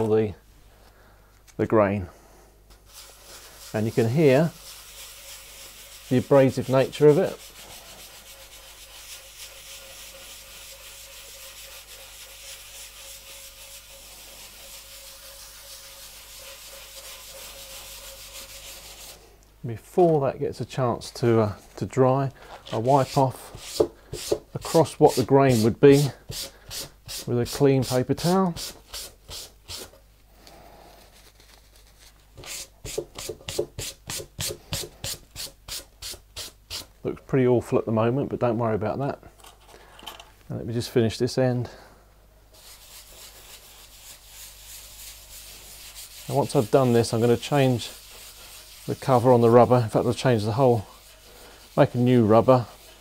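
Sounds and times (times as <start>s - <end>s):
cloth pad scrubbing a tabletop: 2.8s - 19.2s, 42.6s - 53.0s
abrasive scratching on wood: 2.9s - 19.2s, 42.6s - 53.0s.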